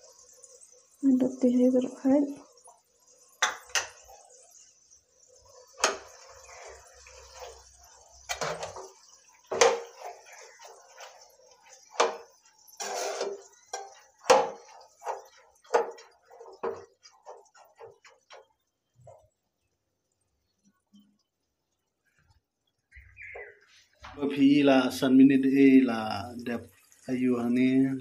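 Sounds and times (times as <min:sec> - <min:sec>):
spatula scraping a pan: 0:05.2 - 0:19.2
water sloshing: 0:05.3 - 0:19.5.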